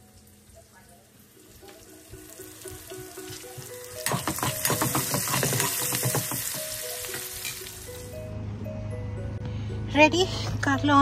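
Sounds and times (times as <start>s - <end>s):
food sizzling in a hot pan: 0.0s - 8.1s
soft background music: 0.0s - 11.0s.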